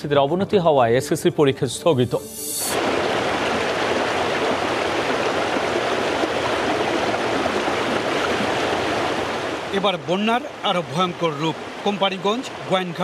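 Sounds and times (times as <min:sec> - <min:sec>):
floodwater rushing: 0:02.0 - 0:13.0.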